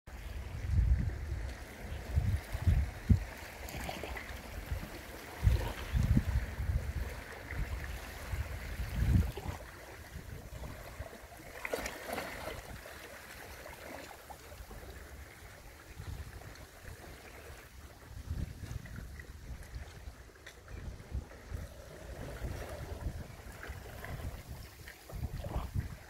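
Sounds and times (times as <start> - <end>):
seawater lapping around rocks: 0.1 - 26.0
wind buffeting microphone: 0.2 - 11.3, 15.8 - 17.2, 17.8 - 26.0.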